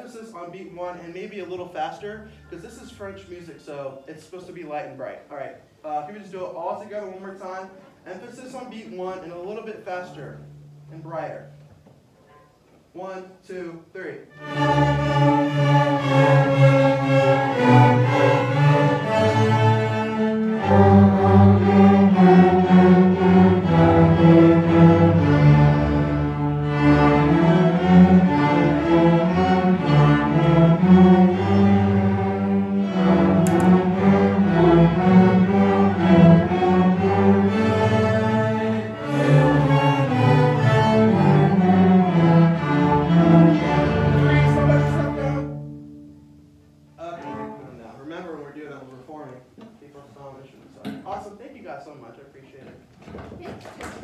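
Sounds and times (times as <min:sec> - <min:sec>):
string orchestra playing waltz: 0:14.3 - 0:46.1, 0:47.0 - 0:47.9.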